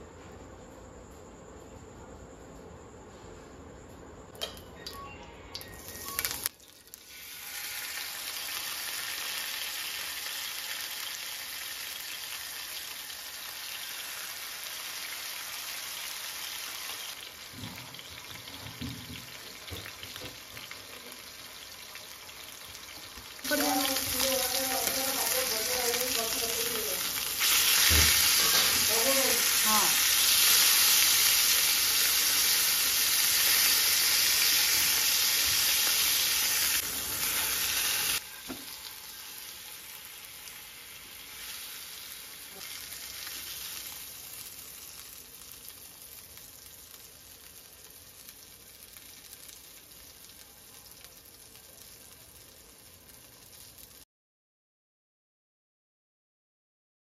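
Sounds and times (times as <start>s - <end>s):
fish sizzling in hot oil: 5.8s - 54.0s
spatula working in pan: 27.2s - 31.4s.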